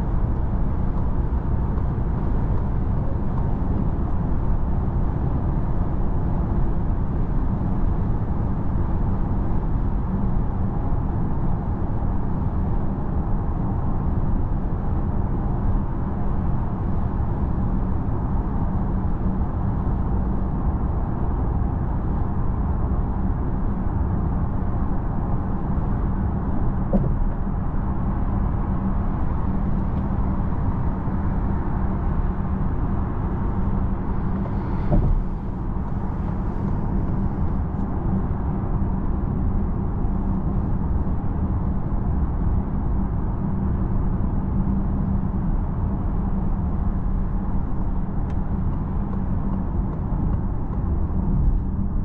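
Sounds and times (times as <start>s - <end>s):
tyre and wind roar: 25.0s - 41.6s
low hum: 32.2s - 38.5s.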